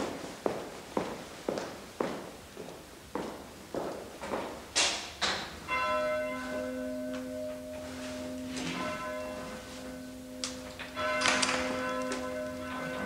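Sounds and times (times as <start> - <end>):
church bell tolling: 5.6 - 13.0.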